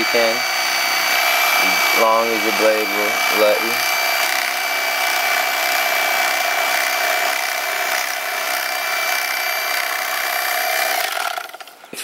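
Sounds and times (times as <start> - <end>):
electric knife motor whining: 0.0 - 11.8.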